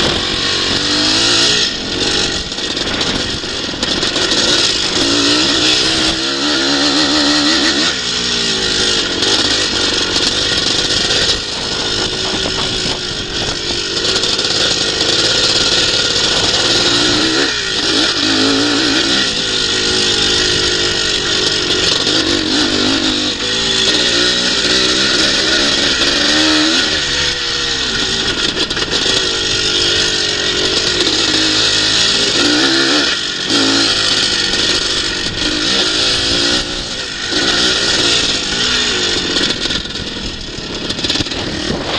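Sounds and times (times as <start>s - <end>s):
motocross bike engine revving: 0.0s - 41.9s
wind rush on microphone: 11.2s - 13.8s, 39.6s - 41.9s.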